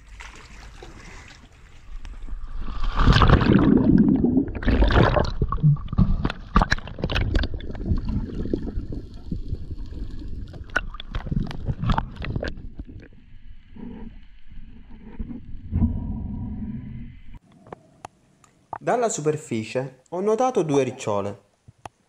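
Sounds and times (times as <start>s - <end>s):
underwater splashing rush: 0.0s - 13.2s
underwater crackles and clicks: 0.0s - 15.9s
gurgling bubbles: 0.0s - 16.7s.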